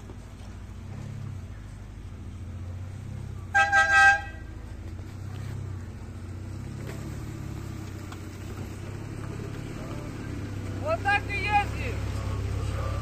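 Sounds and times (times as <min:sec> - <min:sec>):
off-road vehicle engine droning: 0:00.0 - 0:13.0
car horn beeps: 0:03.5 - 0:04.6.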